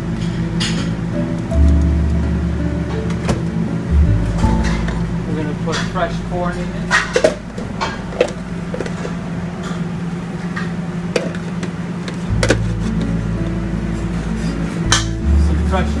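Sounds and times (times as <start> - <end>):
deeper hum: 0.0 - 16.0
kitchen equipment hum: 0.0 - 16.0.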